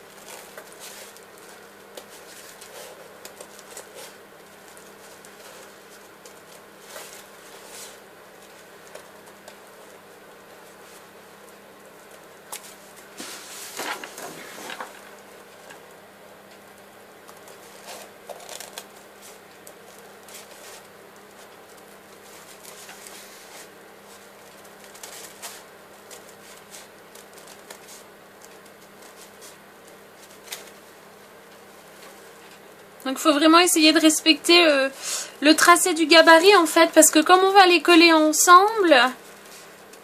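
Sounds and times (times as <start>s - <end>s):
paper rustling: 0.0s - 15.9s, 17.2s - 32.6s.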